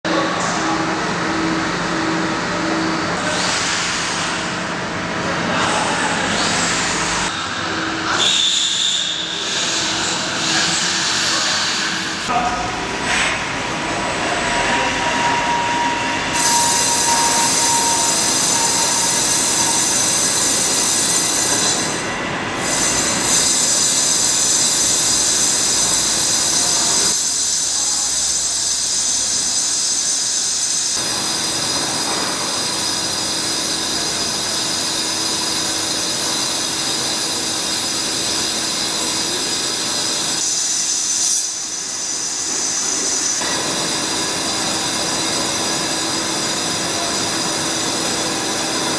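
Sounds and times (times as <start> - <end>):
lathe running with whining tones: 13.7 - 48.9.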